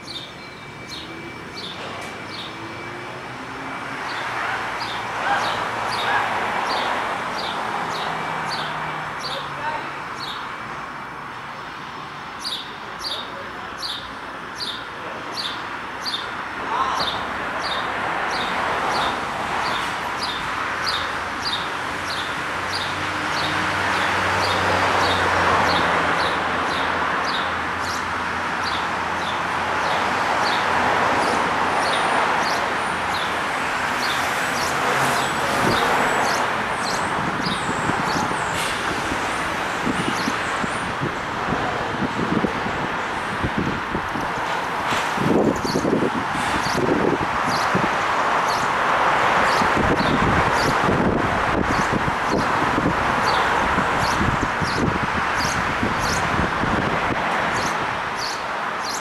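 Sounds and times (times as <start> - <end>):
bird chirping: 0.0 - 2.6, 12.4 - 13.2, 57.6 - 59.0
road traffic passing: 0.0 - 59.0.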